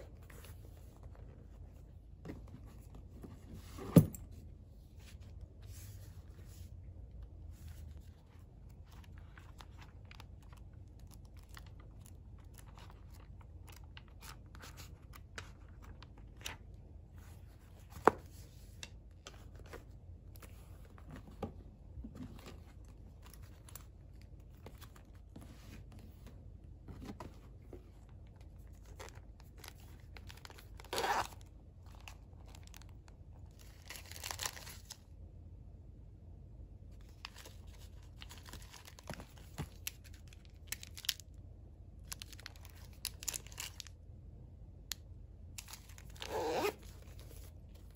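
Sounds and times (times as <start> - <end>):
crinkling wrapper: 8.2 - 16.6, 28.2 - 35.0, 37.0 - 41.4, 42.0 - 44.0.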